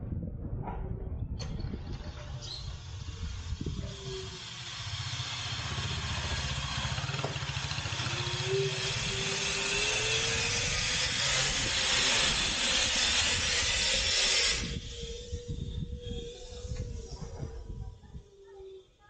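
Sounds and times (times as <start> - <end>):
wind rushing over microphone: 0.0 - 4.5, 8.8 - 18.4
car engine droning: 3.8 - 11.6.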